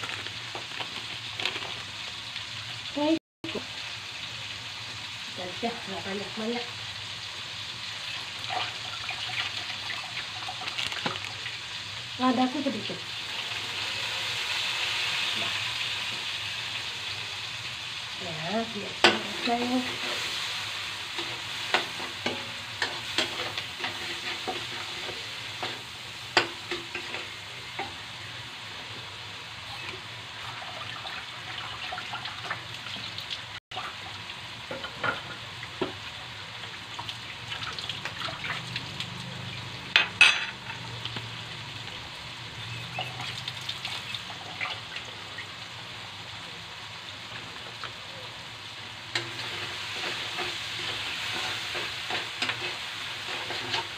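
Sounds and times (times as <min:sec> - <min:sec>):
vegetables sizzling in hot oil: 0:00.0 - 0:53.9
metal spatula scraping a pan: 0:21.2 - 0:27.9, 0:49.1 - 0:53.9.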